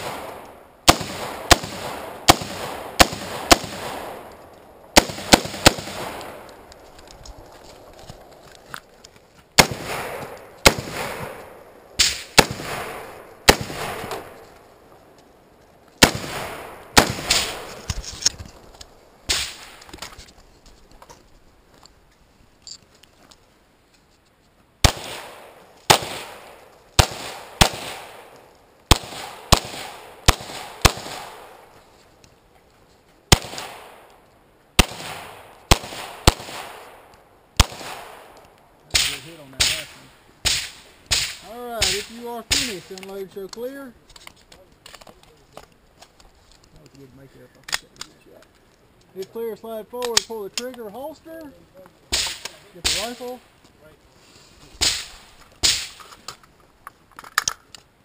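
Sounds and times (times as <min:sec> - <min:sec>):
pistol shots echoing: 0:00.0 - 0:04.3, 0:04.9 - 0:06.5, 0:09.6 - 0:14.4, 0:16.0 - 0:17.7, 0:24.8 - 0:31.6, 0:33.3 - 0:34.1, 0:34.8 - 0:43.0.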